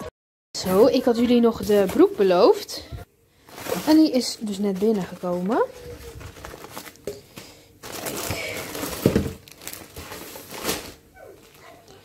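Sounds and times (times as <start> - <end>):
plastic packaging crinkling: 3.4 - 12.0.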